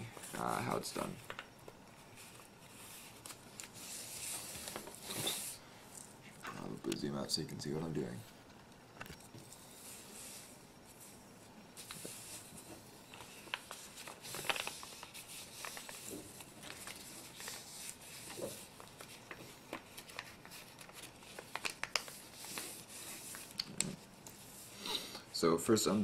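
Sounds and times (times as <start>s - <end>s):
paper crackling: 11.8s - 23.7s
paper being folded: 11.8s - 24.4s.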